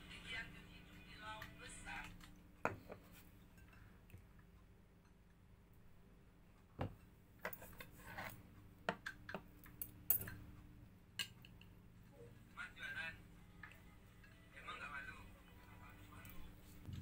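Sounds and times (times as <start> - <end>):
faint steady hum: 0.0 - 17.0
metal chopsticks clicking and tapping: 8.9 - 10.5, 11.2 - 11.8.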